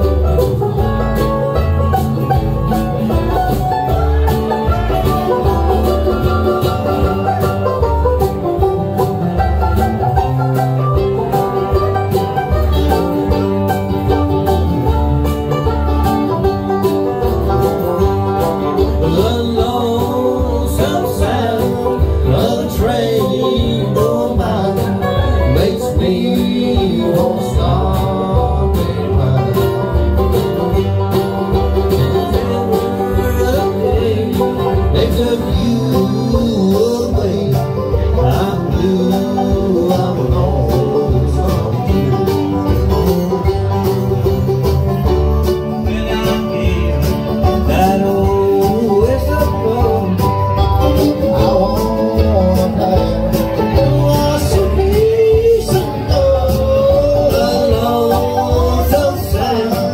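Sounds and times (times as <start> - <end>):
bluegrass band playing: 0.0 - 59.9
voices singing: 18.8 - 43.6, 45.7 - 59.9.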